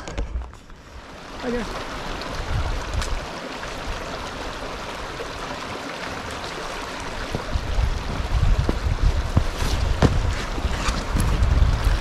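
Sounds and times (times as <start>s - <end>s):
wind buffeting microphone: 2.1s - 3.3s, 7.0s - 12.0s.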